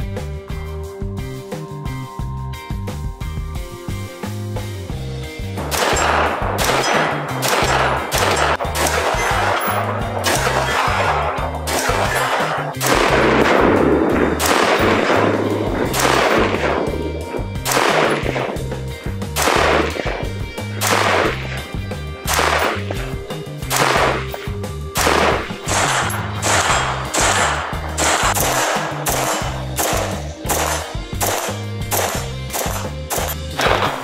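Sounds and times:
background music with bass: 0.0 - 34.0
rifle gunshots: 5.6 - 34.0.

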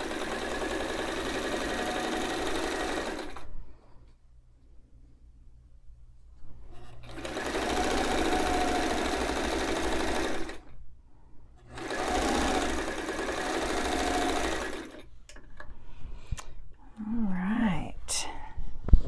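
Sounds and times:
sewing machine stitching: 0.0 - 3.5, 6.7 - 10.7, 11.6 - 15.1.

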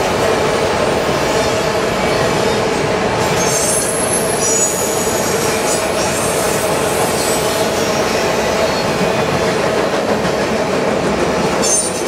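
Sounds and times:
train wheels rumbling on rail: 0.0 - 12.0
high-pitched wheel squeals: 3.4 - 5.1.

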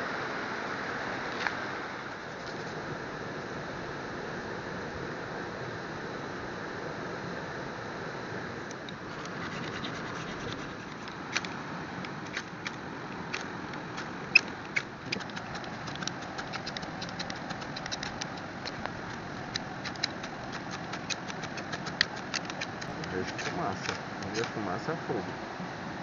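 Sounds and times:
steady background hiss: 0.0 - 26.0
fire steel scraping: 9.0 - 11.5.

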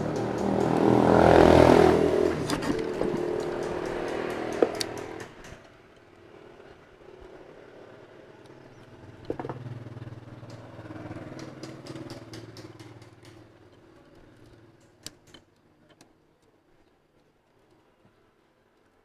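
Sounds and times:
motorbike engine running: 0.0 - 5.6.

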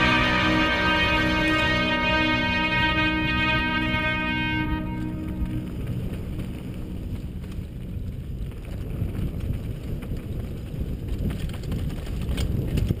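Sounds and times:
wind buffeting microphone: 4.8 - 13.0
mountain bike rattling on dirt trail: 6.2 - 13.0.

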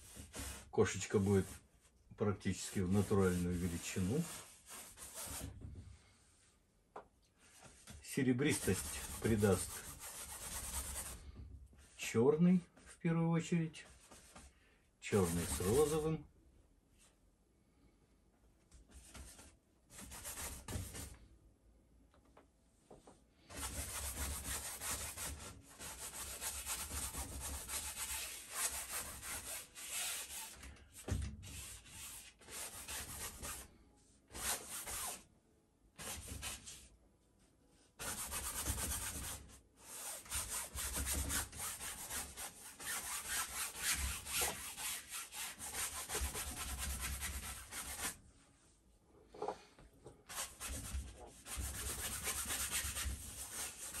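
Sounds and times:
paintbrush scrubbing on canvas: 0.0 - 1.7, 2.6 - 5.5, 7.6 - 11.2, 15.2 - 16.0, 23.5 - 30.6, 50.3 - 54.0.

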